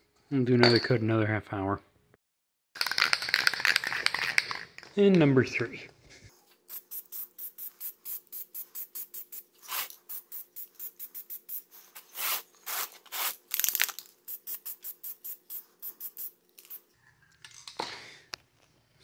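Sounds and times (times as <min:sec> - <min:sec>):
aerosol can spraying hisses: 0:06.7 - 0:13.4, 0:14.3 - 0:16.8.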